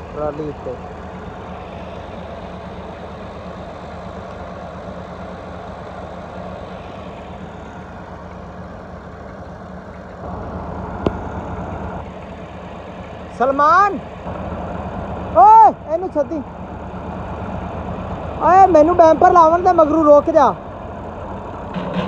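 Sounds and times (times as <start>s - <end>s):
tractor diesel engine under load: 0.0s - 22.0s.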